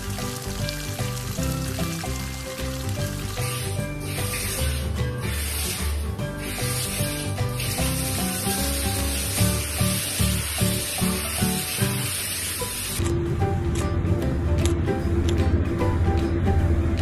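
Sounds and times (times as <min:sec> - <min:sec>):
shower spraying water: 0:00.0 - 0:13.0.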